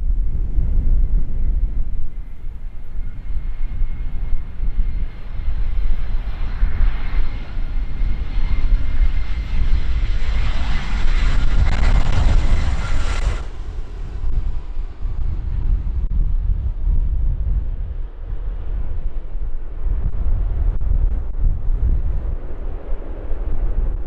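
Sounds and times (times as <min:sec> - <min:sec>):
wind buffeting microphone: 0:00.0 - 0:24.0
jet engines roaring: 0:02.8 - 0:16.1.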